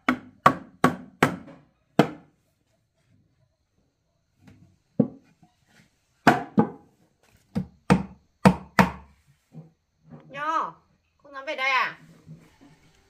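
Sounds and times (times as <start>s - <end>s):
hammer striking nails into wood: 0.0s - 2.2s, 7.5s - 9.0s.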